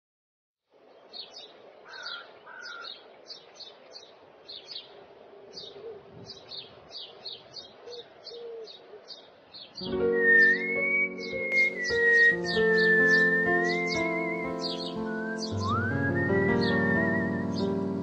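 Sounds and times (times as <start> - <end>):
short high bird chirps: 9.8 - 17.8
lower two-note bird calls: 9.8 - 18.0.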